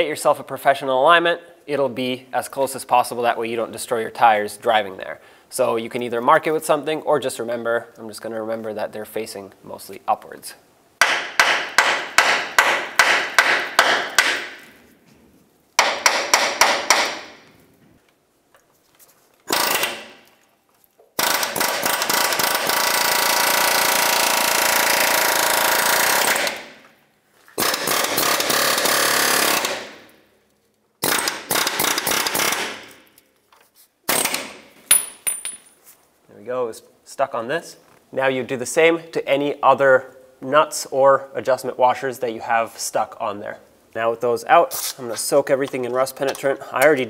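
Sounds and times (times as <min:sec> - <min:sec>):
air hammer striking metal: 0:11.0 - 0:14.7, 0:15.8 - 0:17.5.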